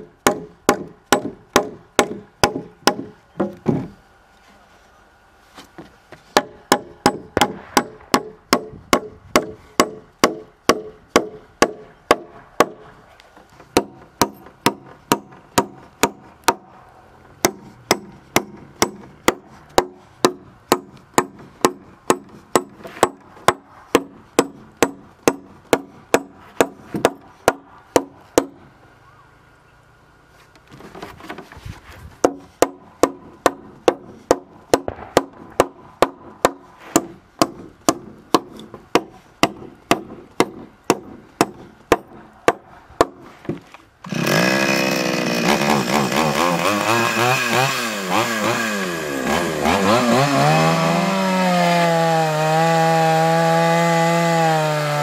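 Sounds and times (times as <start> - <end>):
hand tool striking wood: 0.0 - 4.0, 5.7 - 16.7, 17.4 - 28.6, 32.2 - 44.7.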